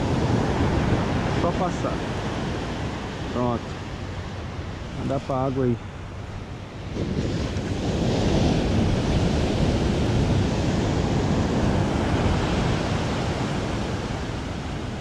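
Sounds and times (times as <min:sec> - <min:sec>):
wind buffeting microphone: 0:00.0 - 0:15.0
surf breaking on beach: 0:06.8 - 0:15.0.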